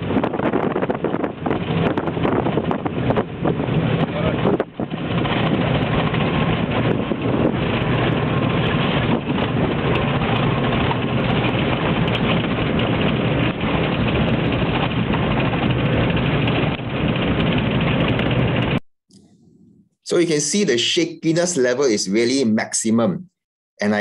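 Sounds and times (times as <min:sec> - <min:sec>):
van engine and road noise: 0:00.0 - 0:18.8.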